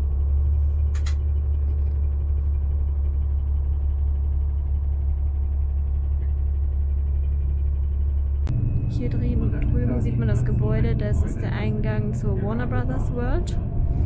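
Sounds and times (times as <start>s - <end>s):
bus engine rumble: 0.0s - 14.0s
road noise: 8.5s - 14.0s.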